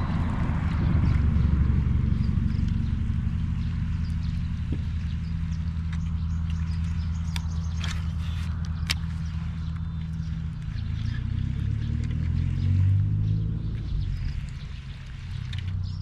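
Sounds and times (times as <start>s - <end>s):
engine running at low speed: 0.0s - 16.0s
faint sharp clicks: 5.8s - 11.1s.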